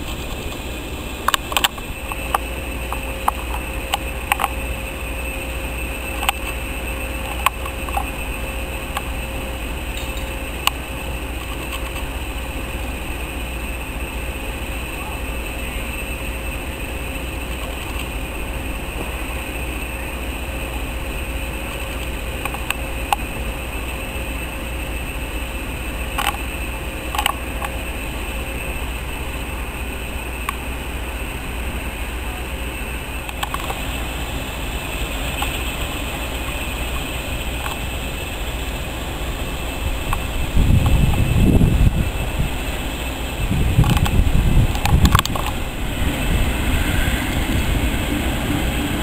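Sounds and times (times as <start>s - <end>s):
faint constant hum: 0.0s - 49.0s
locomotive low rumble: 0.0s - 49.0s
sharp clicks: 0.5s - 4.6s, 43.7s - 45.6s.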